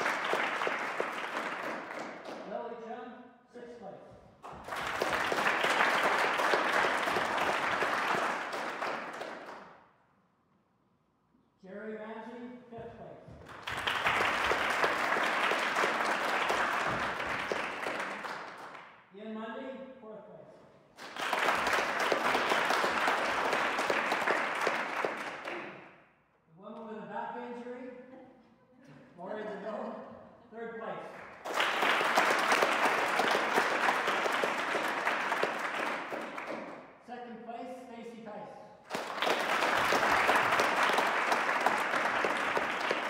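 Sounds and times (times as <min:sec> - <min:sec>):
audience applauding: 0:00.0 - 0:02.5, 0:04.4 - 0:09.7, 0:13.4 - 0:18.8, 0:21.0 - 0:25.8, 0:31.1 - 0:36.8, 0:38.8 - 0:43.0.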